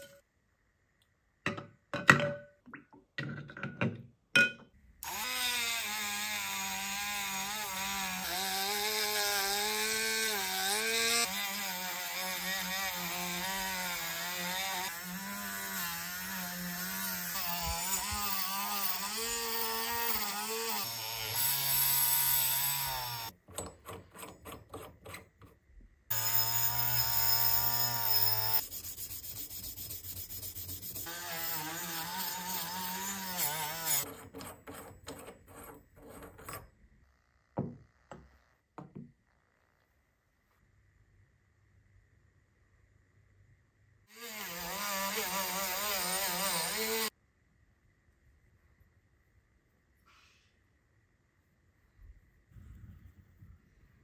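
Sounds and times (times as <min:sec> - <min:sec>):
rotary tool motor whine: 0:26.1 - 0:28.6
wire wheel rasping on metal: 0:26.1 - 0:36.7.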